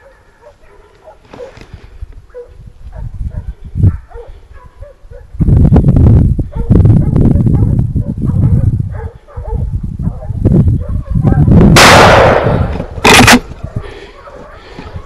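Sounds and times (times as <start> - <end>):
dogs barking and yelping: 0.0 - 1.6, 2.3 - 5.3, 6.4 - 11.6, 13.4 - 15.0
shotgun shots: 11.8 - 13.4.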